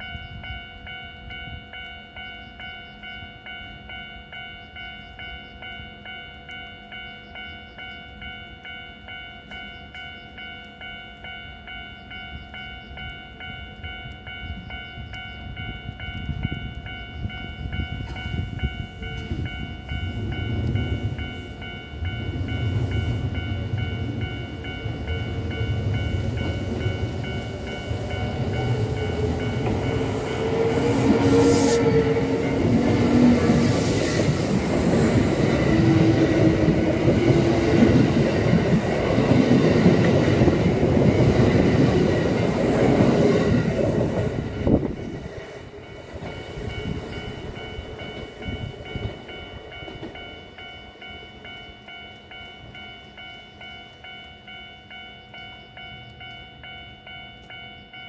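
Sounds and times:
level crossing bell ringing: 0.0s - 43.5s
electric train rumbling: 0.0s - 58.0s.

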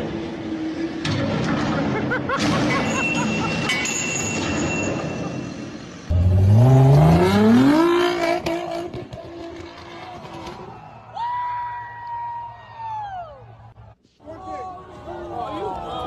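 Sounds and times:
sports car accelerating: 6.1s - 10.6s.

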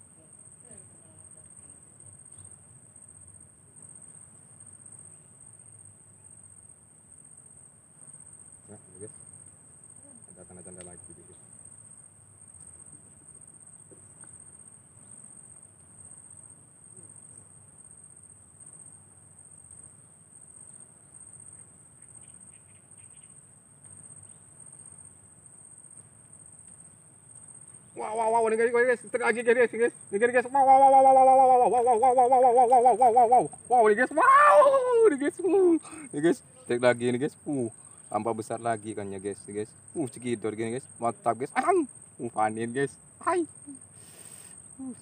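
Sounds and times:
insects calling shrilly: 0.0s - 45.0s.

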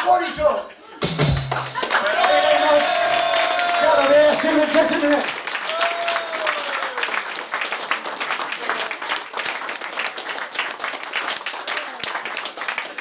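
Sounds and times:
small audience applauding: 1.4s - 13.0s.

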